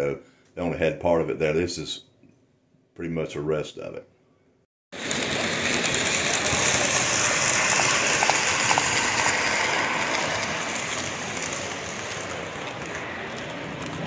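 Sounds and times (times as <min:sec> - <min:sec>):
model train wheels clattering on rail: 0:05.0 - 0:14.0.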